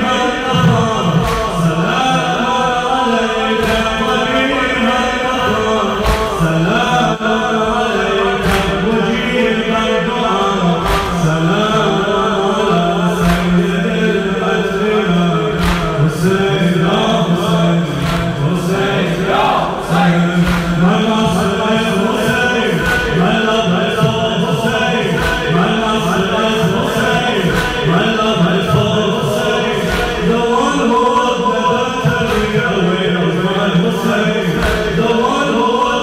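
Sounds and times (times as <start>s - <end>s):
congregation chanting: 0.0s - 36.0s
man chanting lament: 0.0s - 36.0s
chest beating slaps: 6.0s - 6.5s, 10.8s - 11.3s, 13.2s - 13.7s, 15.5s - 16.1s, 17.5s - 21.7s, 22.3s - 25.8s, 26.7s - 28.0s, 34.5s - 35.0s.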